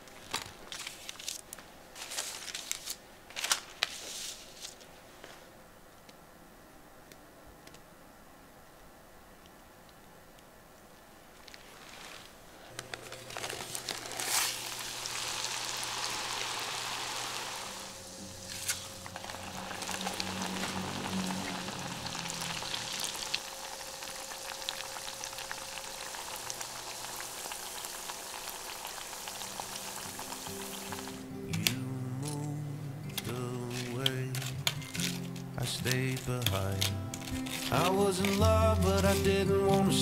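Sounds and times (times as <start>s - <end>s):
dough sizzling in hot oil: 14.1s - 31.2s.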